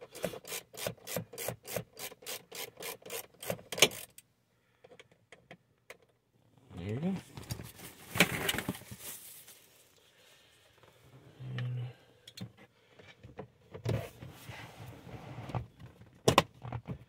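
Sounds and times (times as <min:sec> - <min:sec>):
plastic panel handling rustle: 0:07.2 - 0:09.9.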